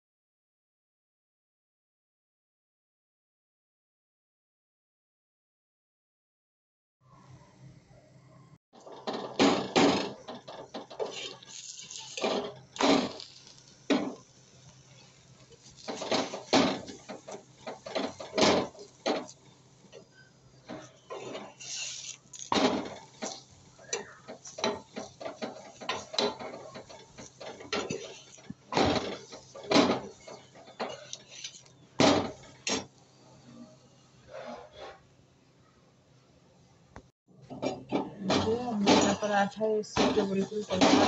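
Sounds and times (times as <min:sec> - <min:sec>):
steel spoon scraping on iron pan: 0:10.4 - 0:32.9.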